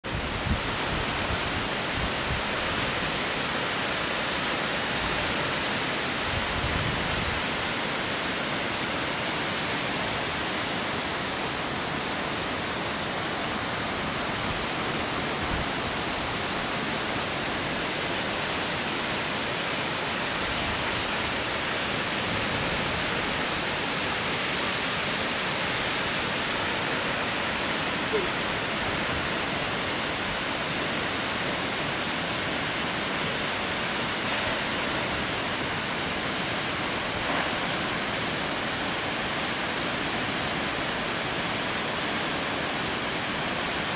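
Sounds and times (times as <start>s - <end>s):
waterfall rushing: 0.0s - 43.9s.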